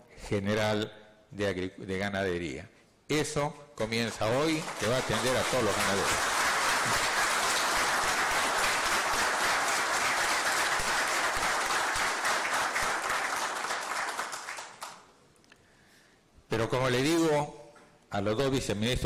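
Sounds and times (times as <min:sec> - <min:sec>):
audience applauding: 0:04.3 - 0:15.1.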